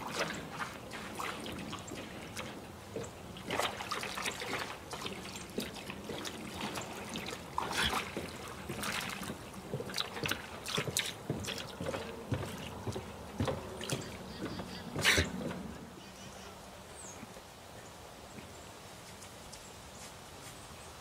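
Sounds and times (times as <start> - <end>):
dog sloshing through water: 0.0 - 16.0.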